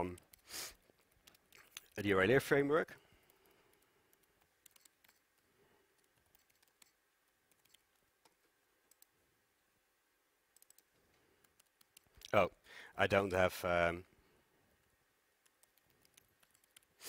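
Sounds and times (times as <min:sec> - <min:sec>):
keyboard typing clicks: 0:00.1 - 0:02.0, 0:03.2 - 0:05.4, 0:06.0 - 0:09.2, 0:10.5 - 0:12.4, 0:15.4 - 0:16.9.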